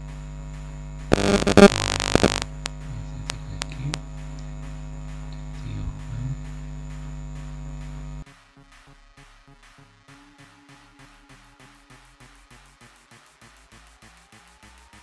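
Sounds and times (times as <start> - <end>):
electrical mains hum: 0.0 - 8.2.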